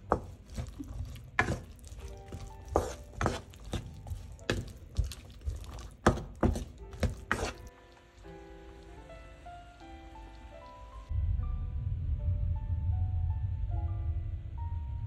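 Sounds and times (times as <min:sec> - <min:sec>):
wooden spatula scraping a pan: 0:00.0 - 0:07.7.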